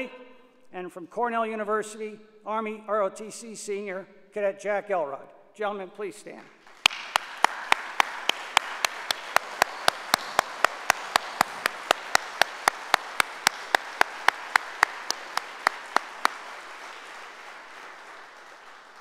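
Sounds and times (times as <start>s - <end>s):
close loud hand claps: 6.4s - 19.0s
audience applauding: 6.6s - 19.0s.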